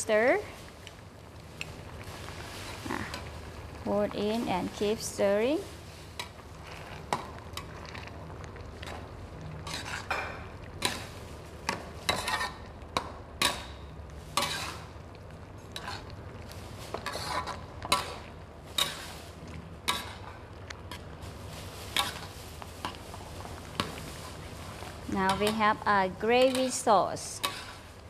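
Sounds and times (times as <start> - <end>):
metal spatula scraping a wok: 9.6 - 11.1, 12.0 - 12.6, 14.4 - 14.9, 15.8 - 16.0, 16.9 - 18.2, 18.8 - 19.2, 21.8 - 22.9, 26.3 - 28.0.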